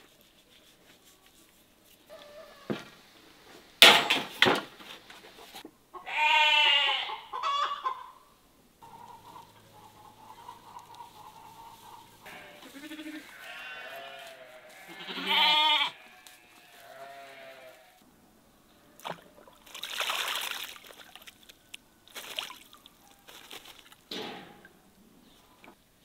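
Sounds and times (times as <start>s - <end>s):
sheep bleating: 6.0s - 7.2s, 12.2s - 18.0s
crow clicks: 8.8s - 12.0s
crow splashing in water trough: 19.0s - 24.1s.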